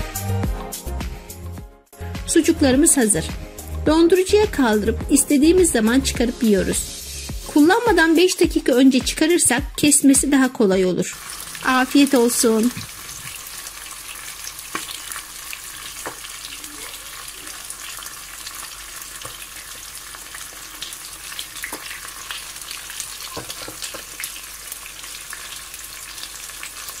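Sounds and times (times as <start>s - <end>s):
food sizzling in frying pan: 6.2s - 9.5s, 11.1s - 27.0s
oil popping and crackling: 11.2s - 27.0s.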